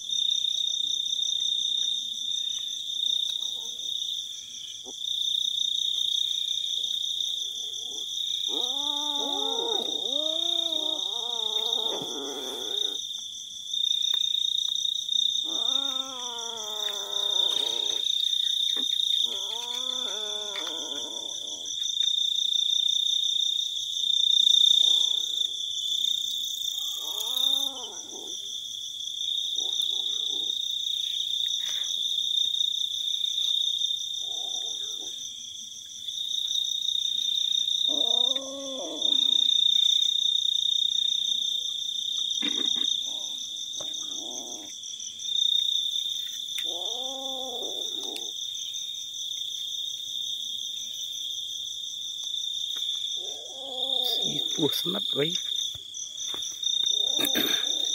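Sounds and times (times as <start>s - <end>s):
night insects chorus: 0.0s - 57.9s
kittens meowing: 7.8s - 13.0s, 15.4s - 18.0s, 19.2s - 21.7s, 26.8s - 28.4s, 46.6s - 48.3s, 53.2s - 54.7s.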